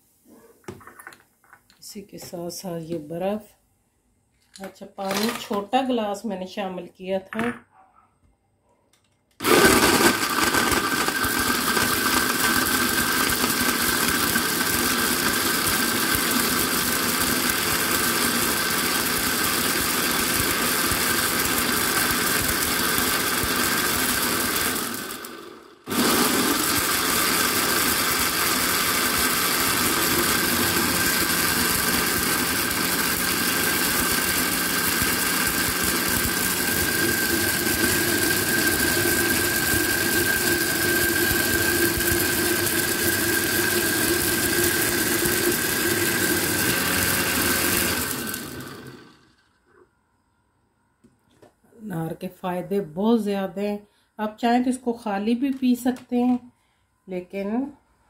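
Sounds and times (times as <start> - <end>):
blender whining: 9.4 - 49.6.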